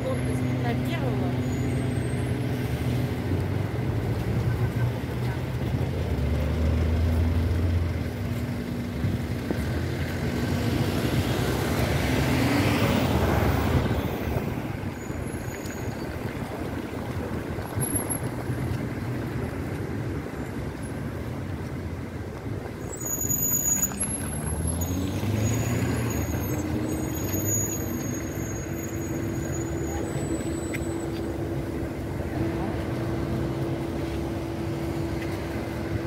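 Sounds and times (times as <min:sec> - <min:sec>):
rumble of passing vehicles: 0:00.0 - 0:36.0
short high squeaks: 0:22.8 - 0:31.4.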